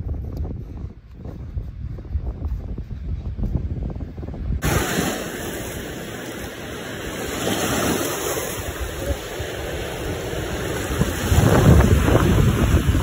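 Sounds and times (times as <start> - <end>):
wind rumbling on microphone: 0.0 - 13.0
ocean waves washing on sand: 4.6 - 13.0.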